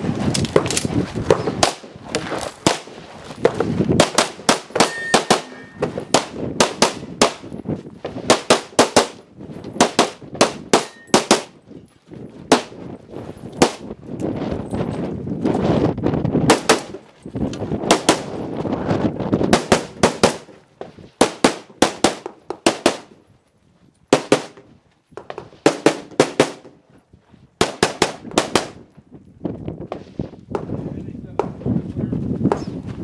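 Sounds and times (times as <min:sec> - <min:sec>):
pistol shots: 0:02.6 - 0:07.5, 0:08.3 - 0:09.2, 0:09.8 - 0:11.6, 0:16.5 - 0:17.0, 0:17.9 - 0:18.3, 0:27.6 - 0:28.8.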